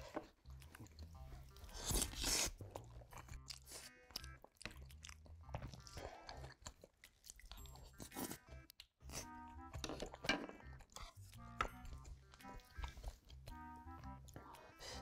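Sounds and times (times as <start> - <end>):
chewing and mouth sounds: 0.0 - 15.0
crunchy mouthful: 0.5 - 9.4.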